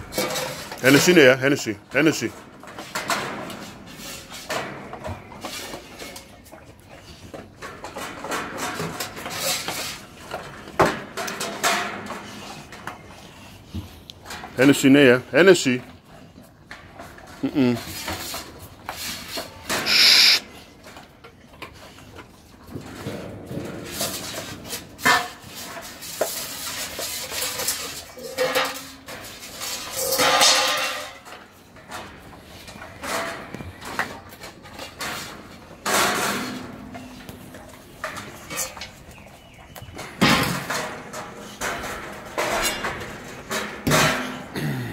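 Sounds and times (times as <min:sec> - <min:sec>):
metal bowls clattering: 0:00.0 - 0:13.5, 0:22.8 - 0:44.6
metal bowl clanking on tiled floor: 0:23.0 - 0:31.4.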